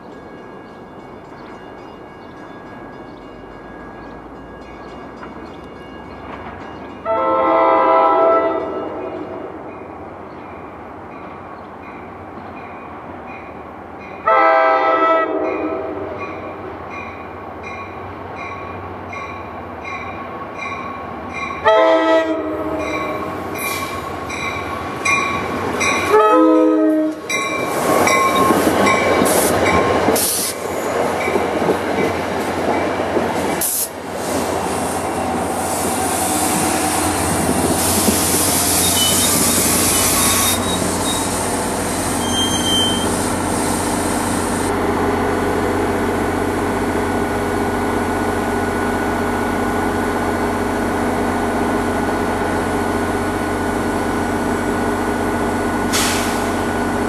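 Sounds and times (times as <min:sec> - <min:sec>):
train cars rumbling and clattering: 0:00.0 - 0:14.4, 0:15.3 - 0:57.0
train horn blasts: 0:07.0 - 0:09.6, 0:14.2 - 0:16.5, 0:21.6 - 0:24.0, 0:26.0 - 0:27.4.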